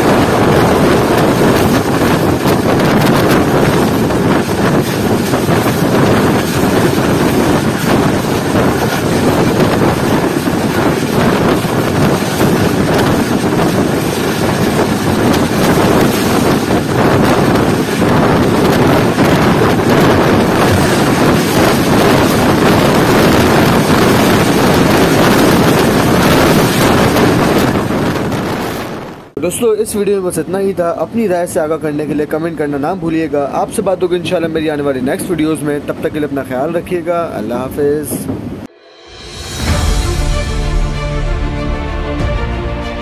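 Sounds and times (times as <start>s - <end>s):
train wheels on track: 0.0s - 29.4s
wind buffeting microphone: 0.0s - 29.9s, 30.8s - 43.0s.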